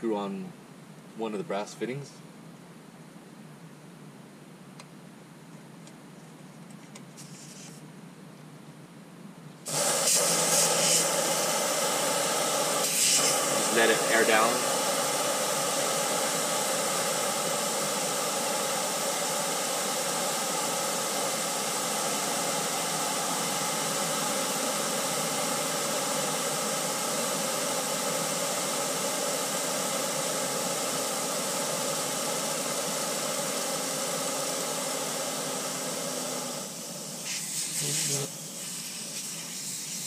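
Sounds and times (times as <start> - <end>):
air hissing out of a tire: 9.7 - 40.0.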